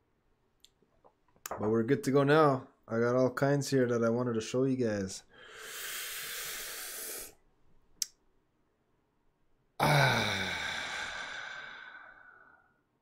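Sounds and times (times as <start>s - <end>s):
man sighing: 9.8s - 12.7s.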